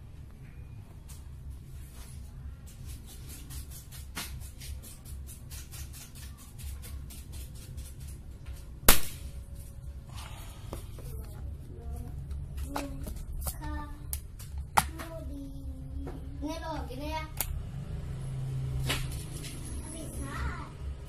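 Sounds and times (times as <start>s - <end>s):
air rifle shot: 8.9s - 9.3s.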